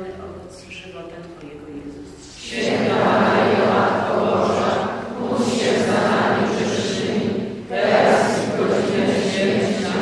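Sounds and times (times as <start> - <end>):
congregation singing in unison: 2.2 - 10.0.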